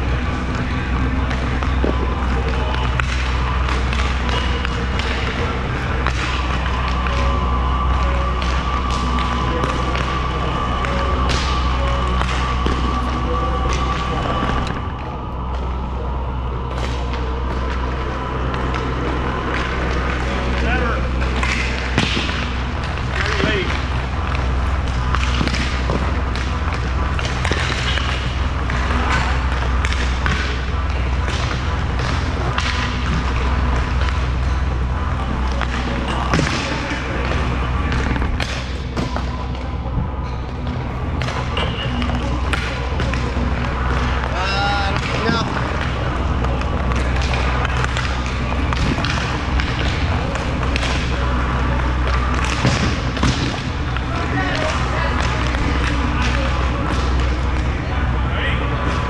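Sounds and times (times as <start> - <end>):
skating rumble: 0.0 - 59.0.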